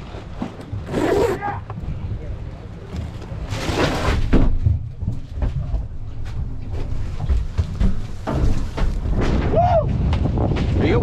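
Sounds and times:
wind rumble on microphone: 0:00.0 - 0:11.0
knocks and clatter on boat: 0:02.8 - 0:11.0.

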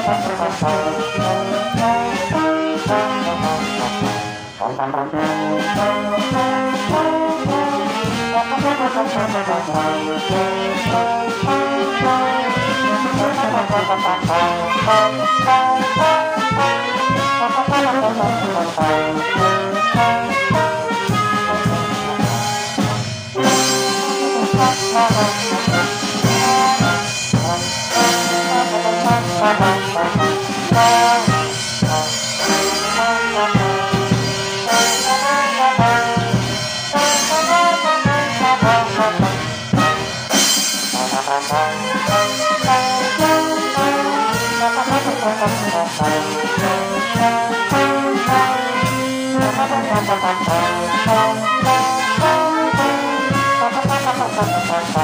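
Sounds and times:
brass band playing: 0:00.0 - 0:55.0
trombone playing a march: 0:00.0 - 0:55.0.

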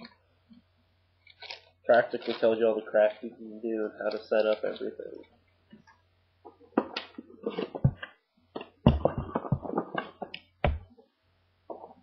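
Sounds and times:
cardboard taps and knocks: 0:06.8 - 0:10.9.

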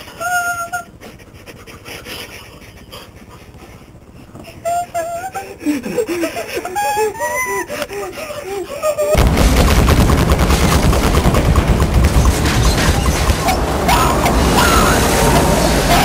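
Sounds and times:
rumbling with dense crackling: 0:09.2 - 0:16.0.

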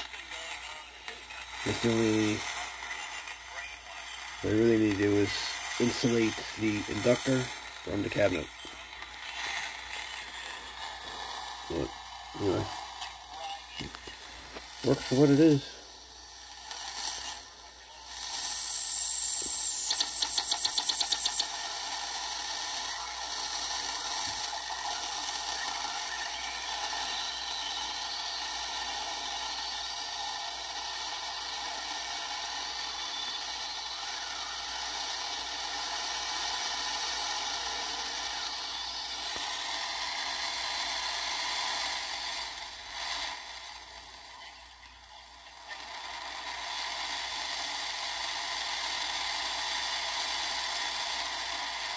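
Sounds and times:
radio static hiss: 0:00.0 - 0:51.9
high whistle wandering in pitch: 0:14.0 - 0:21.5, 0:37.0 - 0:48.1.

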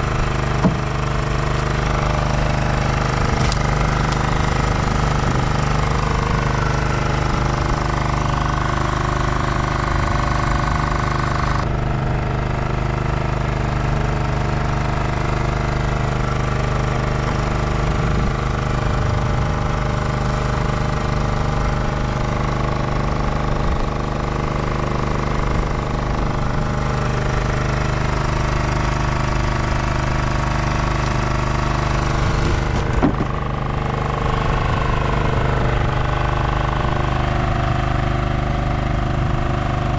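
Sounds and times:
boat engine droning: 0:00.0 - 0:39.9.

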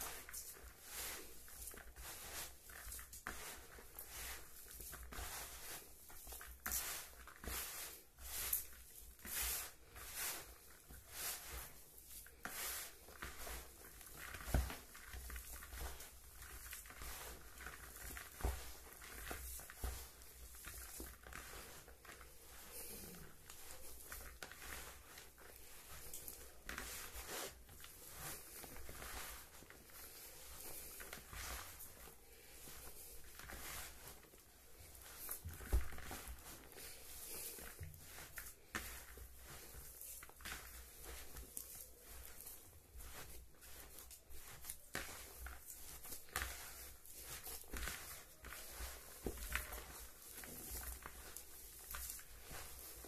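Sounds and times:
hands squeezing mash: 0:00.0 - 0:53.0.

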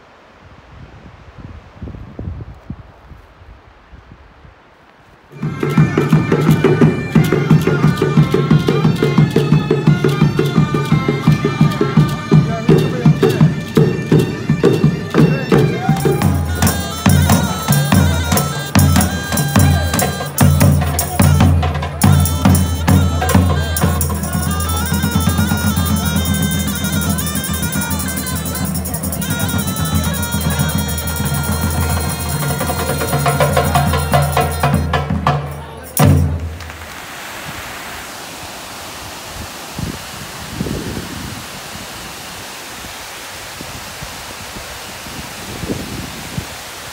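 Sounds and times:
wind instrument drone: 0:05.3 - 0:43.6
heavy hand drumming: 0:05.4 - 0:36.6
bagpipes and drums playing: 0:05.4 - 0:36.8
water rushing over weir: 0:35.9 - 0:46.9.

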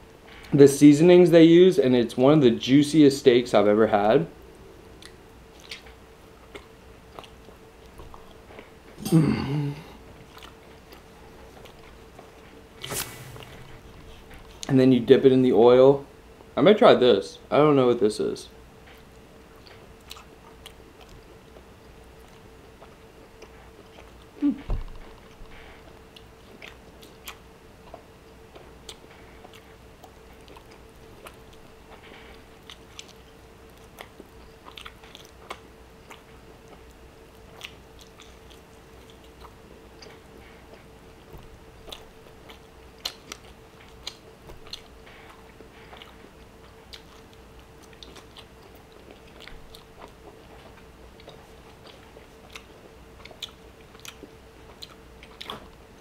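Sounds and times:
faint steady hum: 0:00.0 - 0:56.0
wet chewing sounds: 0:04.9 - 0:09.0, 0:10.0 - 0:12.6, 0:18.8 - 0:56.0.

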